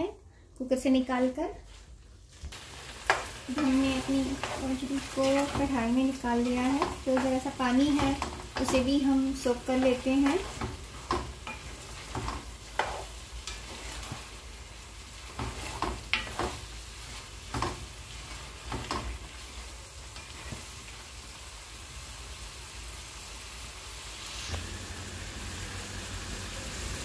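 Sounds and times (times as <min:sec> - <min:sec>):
curry sizzling in a pan: 0:01.0 - 0:27.0
spatula scraping a pan: 0:03.0 - 0:20.8.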